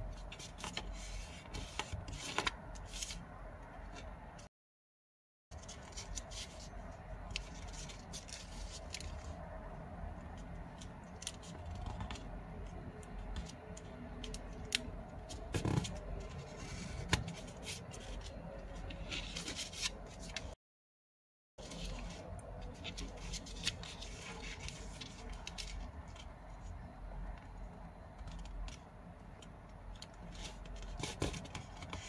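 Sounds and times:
paper crackling: 5.6 - 9.4.

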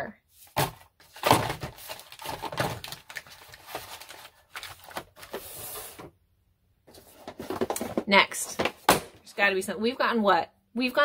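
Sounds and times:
cardboard packaging rustling: 0.4 - 6.1, 6.9 - 8.0.

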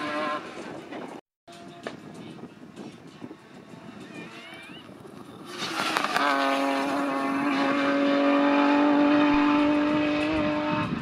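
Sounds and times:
car engine at high revs: 5.5 - 11.0.

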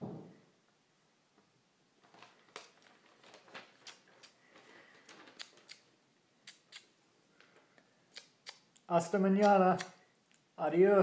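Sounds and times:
paper clicks and rustling: 2.0 - 5.8.

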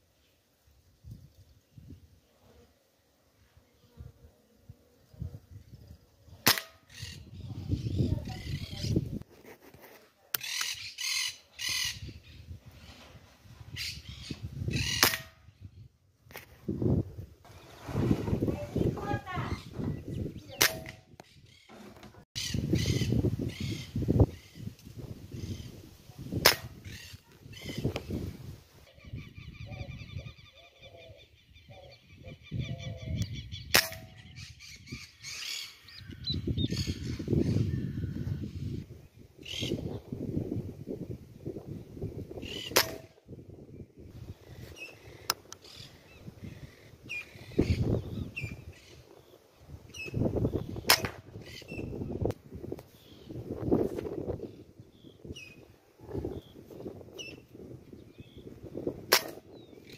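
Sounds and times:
air rifle shot: 6.4 - 6.8, 14.9 - 15.4, 26.4 - 26.8, 33.7 - 34.2, 42.7 - 43.2, 50.8 - 51.3
birds calling: 6.4 - 9.2, 10.3 - 13.1, 13.7 - 15.7, 17.5 - 25.8, 26.4 - 28.2, 28.8 - 38.8, 39.4 - 40.1, 42.3 - 52.3, 54.1 - 59.9.

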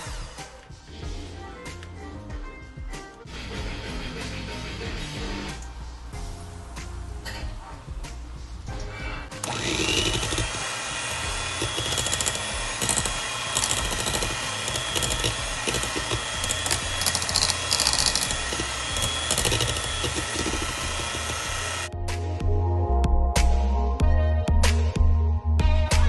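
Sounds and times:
beater clattering in metal bowl: 9.4 - 21.9
stand mixer motor whine: 9.4 - 21.9.

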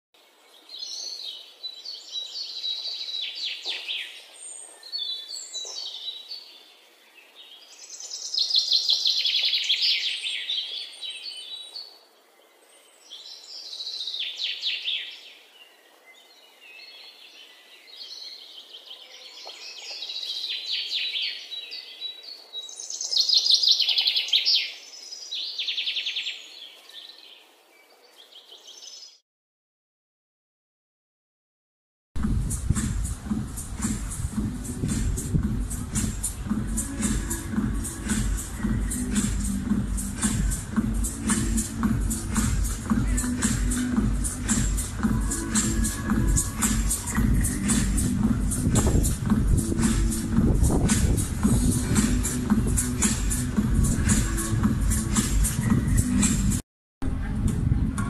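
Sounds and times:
many birds chirping: 0.3 - 29.2.

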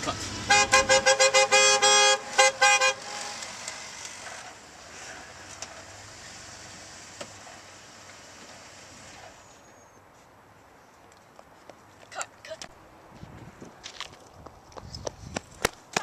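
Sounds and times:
car horn honking: 0.0 - 4.1
faint outdoor background: 0.0 - 16.0.

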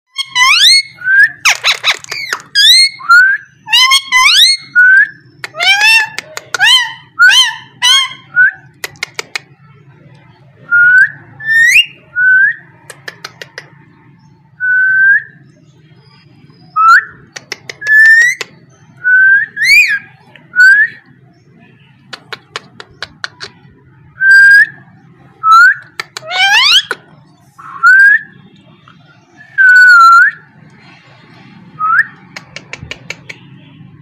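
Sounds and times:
parakeet whistling: 0.1 - 8.7, 17.9 - 21.0, 25.4 - 27.0
parakeet clicking: 8.8 - 9.5, 17.3 - 18.6, 25.8 - 27.0.

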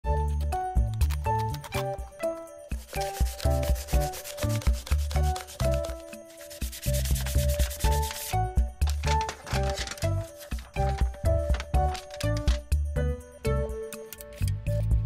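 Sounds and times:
background music with bass: 0.0 - 15.0
sanding pad scraping metal: 2.8 - 8.4.

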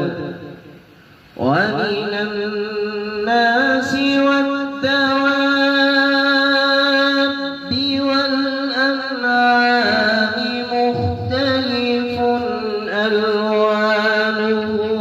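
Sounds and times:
man reciting melodically into microphone: 0.0 - 15.0.

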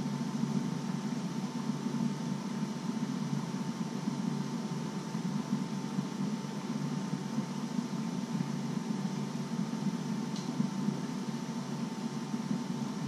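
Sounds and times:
appliance hum and hiss: 0.0 - 13.0
faint constant whine: 0.0 - 13.0
faint tick: 10.3 - 10.5.

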